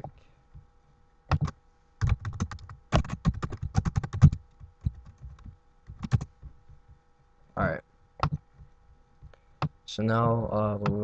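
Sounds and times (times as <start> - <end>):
keyboard typing: 1.3 - 6.8, 8.2 - 8.7, 10.8 - 11.0.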